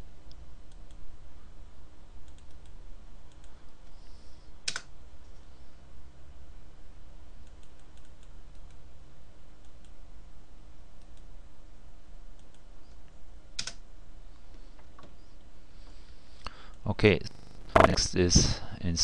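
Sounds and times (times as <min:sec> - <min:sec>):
low steady hum: 0:00.0 - 0:18.8
keyboard and mouse clicks: 0:17.7 - 0:18.0.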